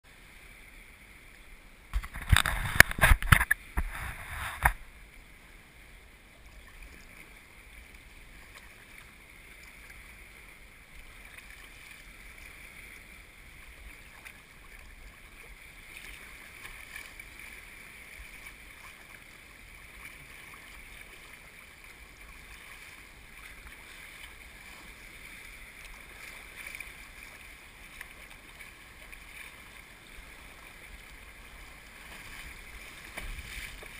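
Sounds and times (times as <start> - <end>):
kayak knocks and bumps: 2.0 - 4.8, 32.1 - 33.9
water wash: 13.6 - 33.9.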